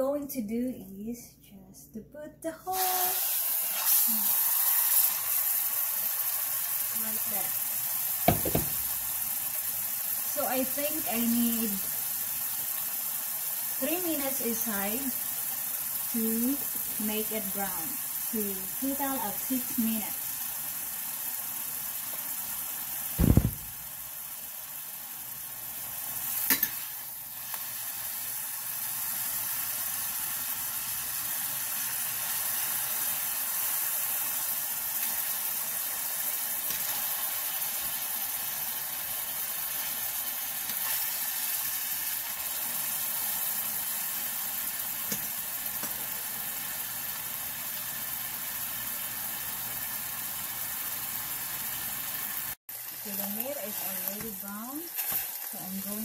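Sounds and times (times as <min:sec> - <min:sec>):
meat sizzling in a frying pan: 0:02.7 - 0:56.0
dull thump: 0:08.3 - 0:08.9, 0:23.2 - 0:23.9.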